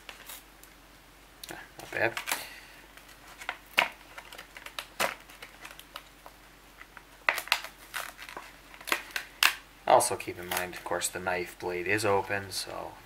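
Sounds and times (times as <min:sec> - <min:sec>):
plastic packaging crackling: 0:01.8 - 0:11.1.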